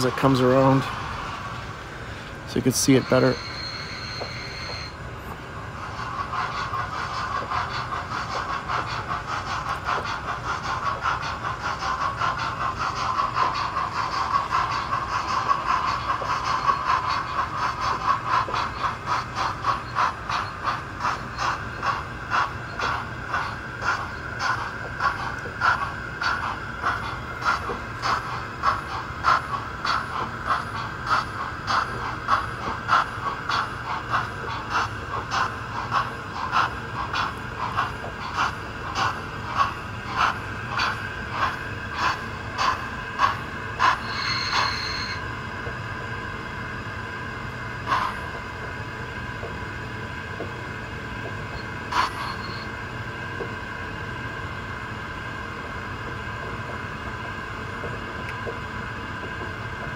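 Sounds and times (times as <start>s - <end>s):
model steam locomotive chuffing: 0.0s - 59.9s
steady hum: 0.0s - 59.9s
high squeal: 2.5s - 5.0s, 43.9s - 45.2s, 51.6s - 52.7s.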